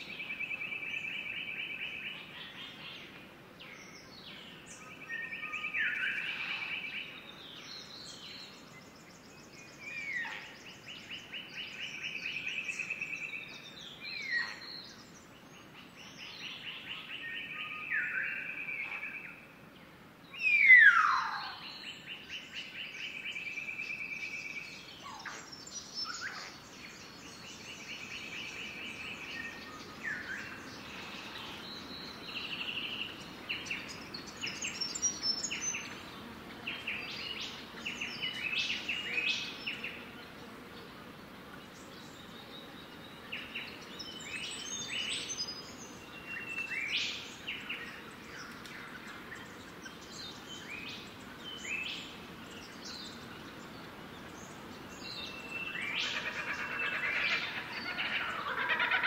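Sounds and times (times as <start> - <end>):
birds trilling: 55.4 - 59.0.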